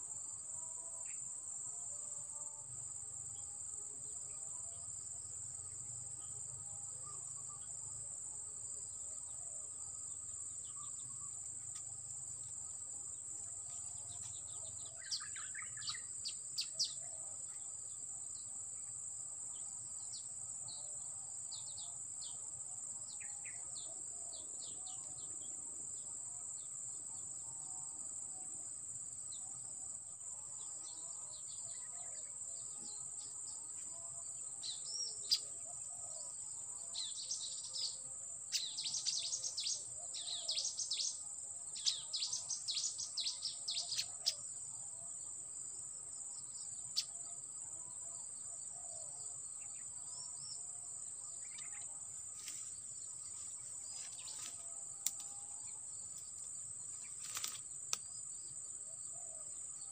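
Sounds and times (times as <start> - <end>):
small birds chirping: 51.4 - 51.8.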